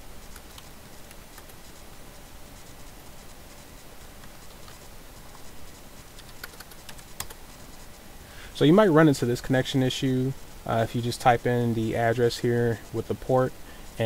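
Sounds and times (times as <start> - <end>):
background hiss: 0.0 - 14.0
keyboard typing clicks: 6.2 - 7.4.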